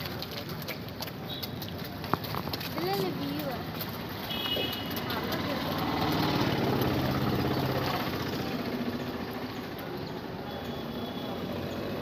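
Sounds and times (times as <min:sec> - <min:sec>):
engine running with fast throb: 0:04.7 - 0:10.0.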